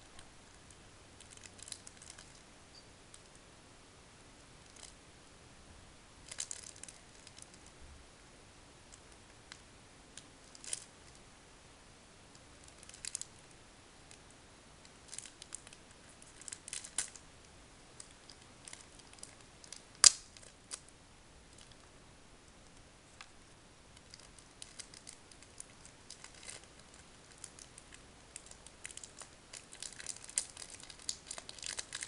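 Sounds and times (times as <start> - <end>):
wrapper crinkling and clicking: 1.2 - 2.4, 6.2 - 7.6, 10.2 - 11.2, 12.6 - 13.3, 14.8 - 17.2, 18.0 - 20.9, 24.0 - 32.0.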